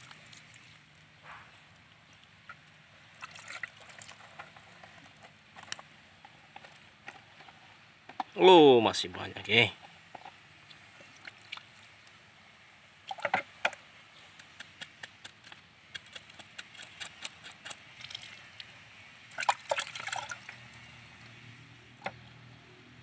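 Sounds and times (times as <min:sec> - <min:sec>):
water splashing in a bucket: 0:03.1 - 0:04.3, 0:10.6 - 0:12.0, 0:13.0 - 0:13.7, 0:19.3 - 0:21.0
knife scraping fish scales: 0:14.3 - 0:17.9.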